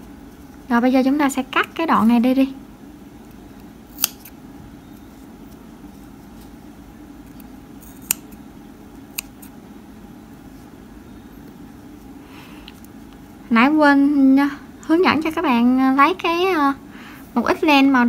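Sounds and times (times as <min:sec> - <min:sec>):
scissors snipping yarn: 0:03.9 - 0:04.4, 0:07.3 - 0:08.4, 0:09.0 - 0:09.6.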